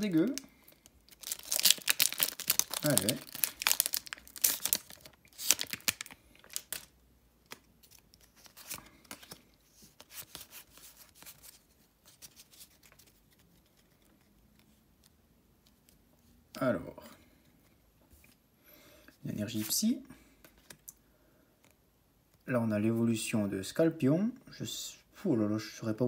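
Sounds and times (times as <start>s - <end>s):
foil pack crinkling: 0.0s - 6.9s
cards clicking and rustling: 7.5s - 16.0s.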